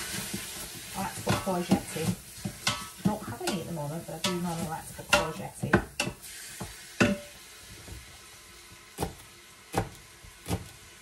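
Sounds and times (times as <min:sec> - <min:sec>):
meat sizzling: 0:00.0 - 0:11.0
utensil knocking on pot: 0:01.2 - 0:07.3.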